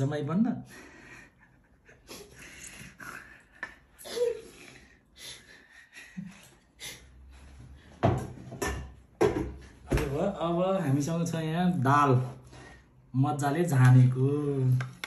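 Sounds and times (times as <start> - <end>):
soft laughing breaths: 0.6 - 7.6.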